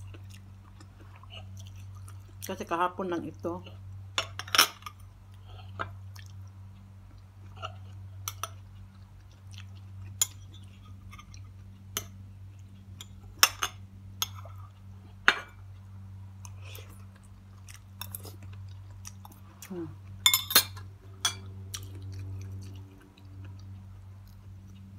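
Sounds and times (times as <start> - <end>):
steady low hum: 0.0 - 24.9
metal spoon clinking on glass bowl: 20.2 - 21.5
mouth chewing: 21.4 - 24.9.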